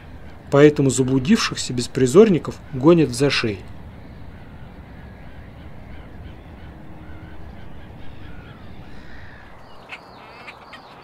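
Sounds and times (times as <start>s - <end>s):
harsh waterbird calls: 0.0s - 11.0s
short high bird calls: 4.0s - 11.0s.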